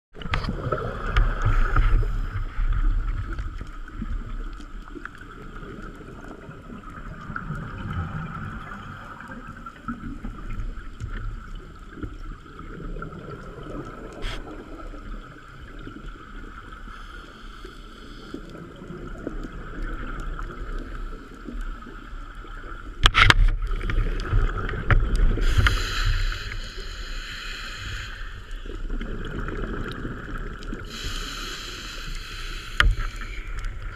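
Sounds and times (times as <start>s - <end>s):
exhaled bubbles bubbling: 0.2s - 16.9s, 18.5s - 27.1s, 27.8s - 31.3s
diver breathing through regulator: 25.4s - 28.7s, 30.8s - 33.7s.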